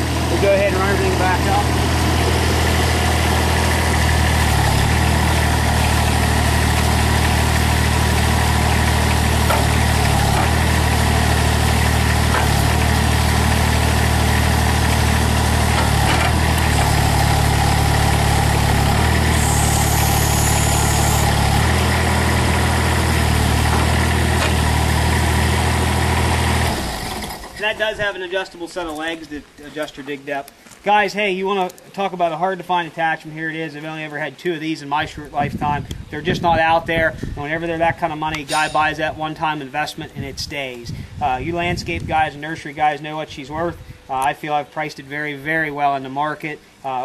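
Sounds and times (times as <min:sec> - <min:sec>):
loader engine running: 0:00.0 - 0:27.6.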